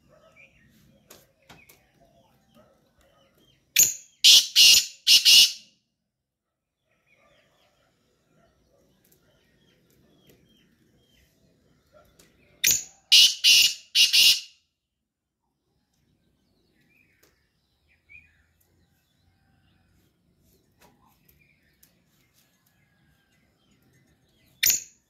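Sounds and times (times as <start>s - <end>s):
bird harsh grating call: 3.8s - 5.7s, 12.6s - 14.5s.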